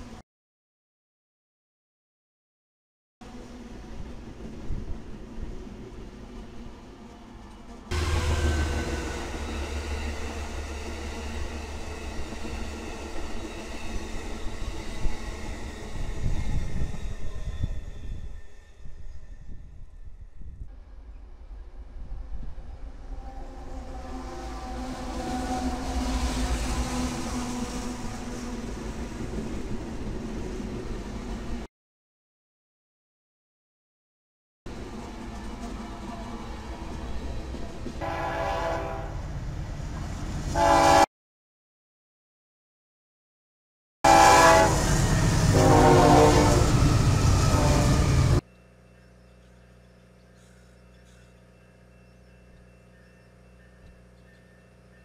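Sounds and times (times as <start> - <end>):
wheels hissing on rail: 3.2 - 19.8, 21.5 - 31.6, 44.1 - 48.4
diesel locomotive engine drone: 3.2 - 31.7, 34.7 - 41.1, 44.1 - 55.0
passing train rumble: 3.2 - 31.7, 34.7 - 41.1, 44.1 - 49.0
locomotive air horn chord: 38.0 - 39.2, 40.6 - 41.1, 44.1 - 48.4.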